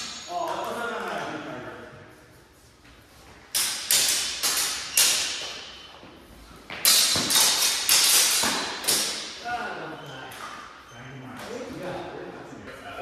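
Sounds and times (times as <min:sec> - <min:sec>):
swords clashing with echo: 0:00.0 - 0:01.2, 0:03.5 - 0:05.9, 0:06.7 - 0:09.5.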